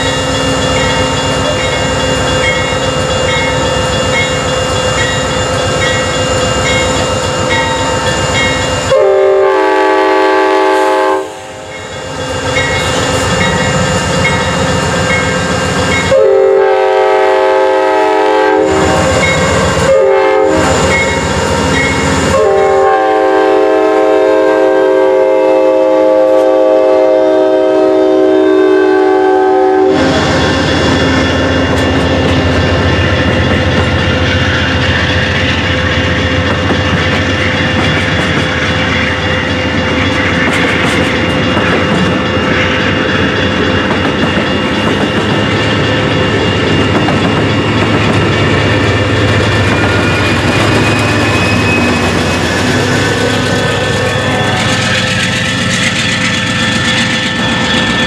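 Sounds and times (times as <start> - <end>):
diesel locomotive passing: 0.0 - 58.0
rumble of wheels on rail: 0.0 - 58.0
train horn blasts: 8.8 - 11.8, 16.0 - 21.2, 21.8 - 32.2, 49.6 - 55.2.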